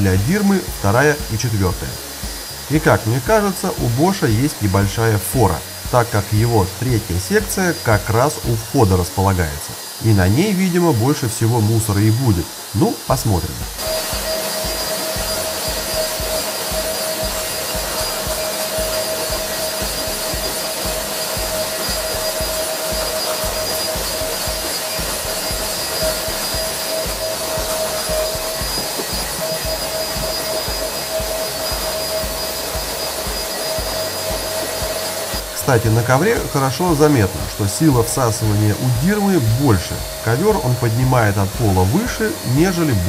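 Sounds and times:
vacuum cleaner on carpet: 0.0 - 43.0.

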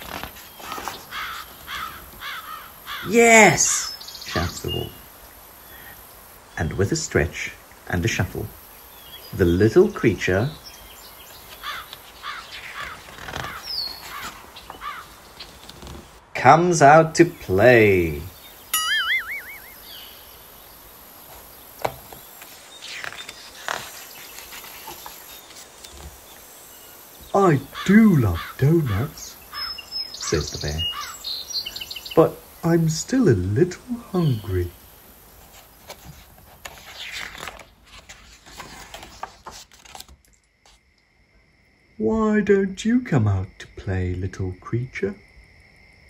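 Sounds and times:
paper page turning: 0.0 - 1.5, 11.4 - 14.8, 21.3 - 26.2, 35.4 - 40.8
outdoor nature ambience: 0.0 - 46.0
warbling cartoon sound effect: 18.8 - 19.8.

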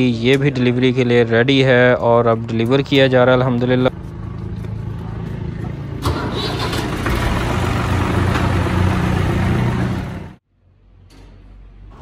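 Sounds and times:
tractor diesel engine running: 3.0 - 10.4.

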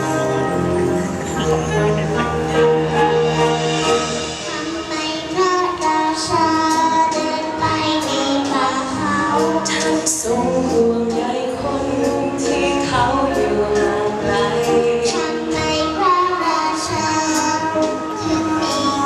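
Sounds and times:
wind band playing: 0.0 - 6.4
woman singing: 3.7 - 19.0.

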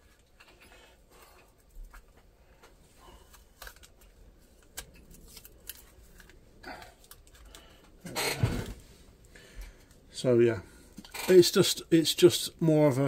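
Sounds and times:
paper and tape rustling: 1.5 - 8.8.

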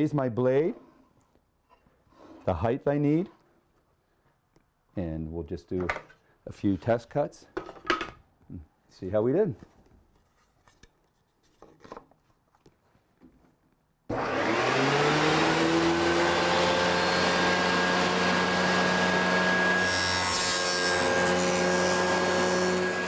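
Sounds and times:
saw blade cutting plywood: 14.1 - 23.0
table saw motor whine: 14.1 - 23.0.

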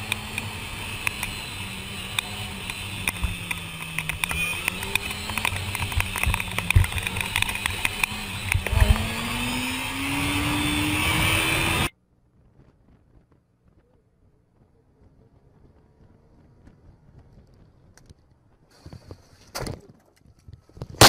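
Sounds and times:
motorcycle engine accelerating: 0.0 - 18.7
clicks and knocks on microphone: 2.7 - 9.1.

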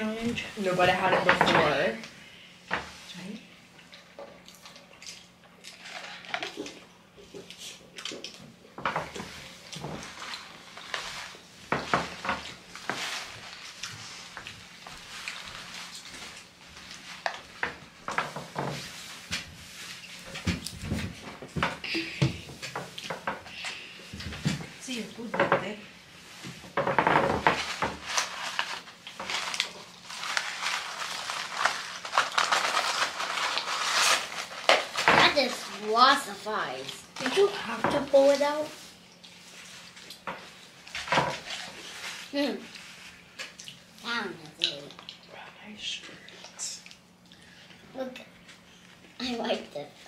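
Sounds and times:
food packaging crinkling: 4.4 - 6.8, 9.7 - 18.4, 27.2 - 37.6
paper wrappers crackling: 12.0 - 20.6, 27.1 - 44.3.

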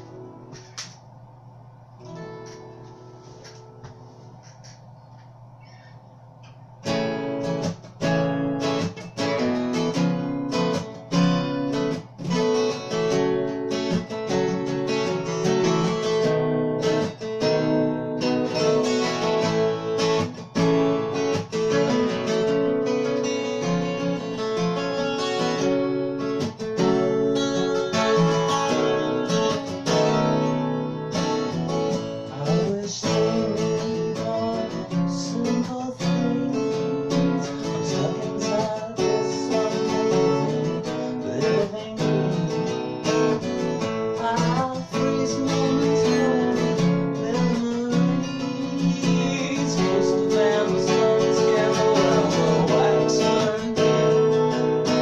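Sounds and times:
acoustic guitar strummed: 0.0 - 55.0
man singing: 32.2 - 55.0.

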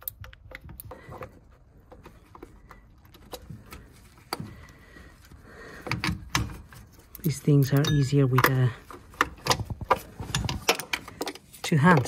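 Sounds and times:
hand tools tapping metal: 5.8 - 12.0.

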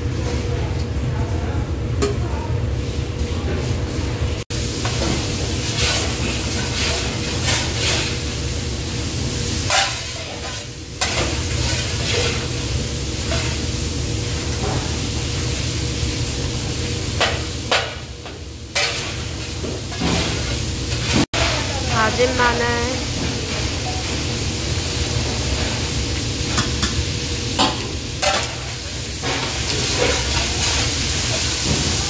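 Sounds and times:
vegetables sizzling in a wok: 4.5 - 32.0
metal spatula scraping a wok: 5.7 - 8.2, 13.2 - 13.7, 18.8 - 19.2.

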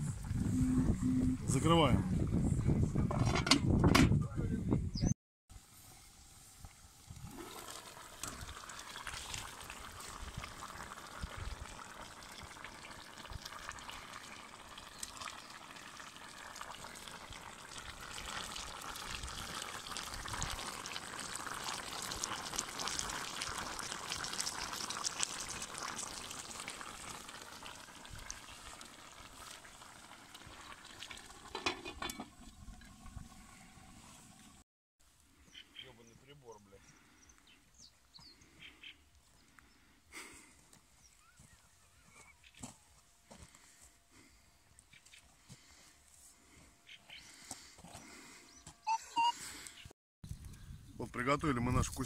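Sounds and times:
stew sizzling and bubbling: 0.0 - 2.4, 5.5 - 34.6.

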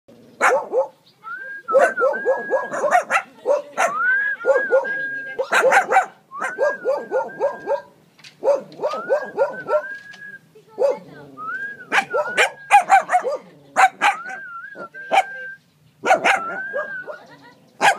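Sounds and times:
small dog yapping: 1.8 - 10.0, 16.0 - 17.2
dog whining: 6.4 - 10.0.

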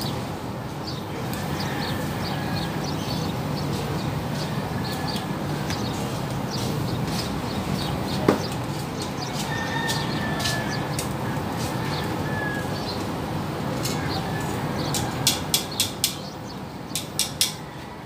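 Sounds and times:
fish grilling over charcoal: 8.5 - 15.6
tongs clicking on grill grate: 14.9 - 16.3, 16.9 - 17.6.

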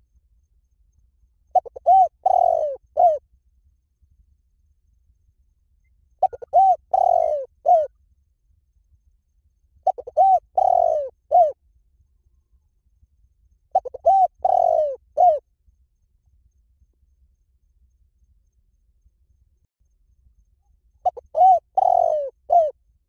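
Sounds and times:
dove cooing: 1.5 - 3.2, 6.2 - 8.0, 9.8 - 11.6, 13.7 - 15.4, 21.0 - 22.8.

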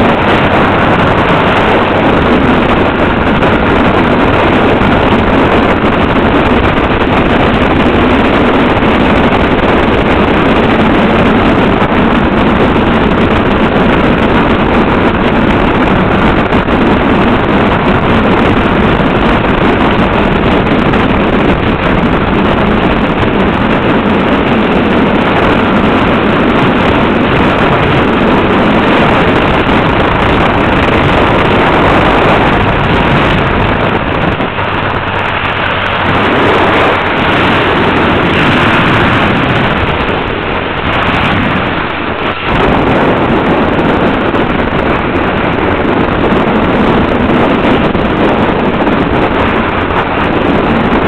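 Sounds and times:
motorcycle engine running: 0.0 - 51.0
wind rushing over microphone: 0.0 - 51.0.

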